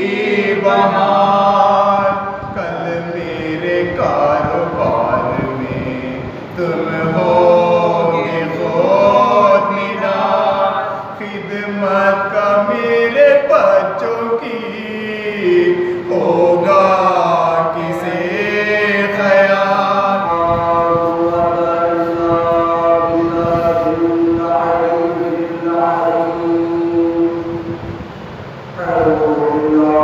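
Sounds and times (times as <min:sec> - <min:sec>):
man chanting through loudspeakers: 0:00.0 - 0:28.0, 0:28.6 - 0:30.0.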